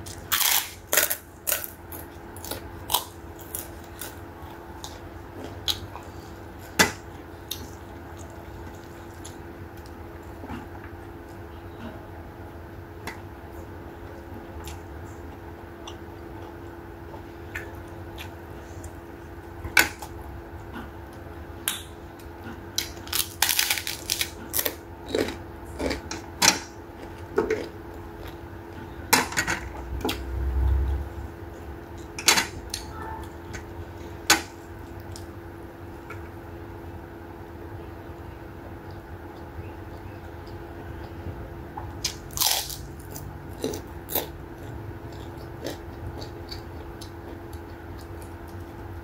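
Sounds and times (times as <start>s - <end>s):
crunchy bites and chewing: 0.0s - 6.2s, 21.6s - 28.4s, 42.0s - 48.9s
steady low hum: 0.0s - 49.0s.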